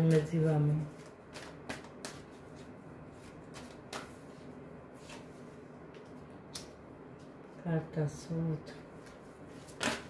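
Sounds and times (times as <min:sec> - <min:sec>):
cards being shuffled: 0:00.9 - 0:05.3.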